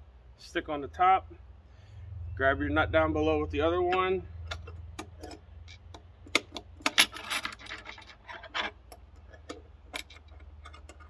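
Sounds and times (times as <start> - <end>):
metal tools clicking on bolt: 3.9 - 11.0.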